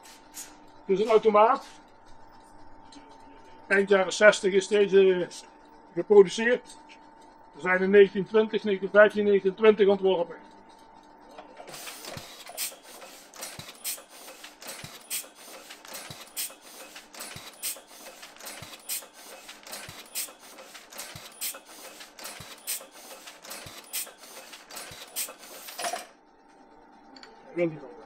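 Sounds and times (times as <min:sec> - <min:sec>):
printing press mechanical clatter: 0:00.4 - 0:26.2.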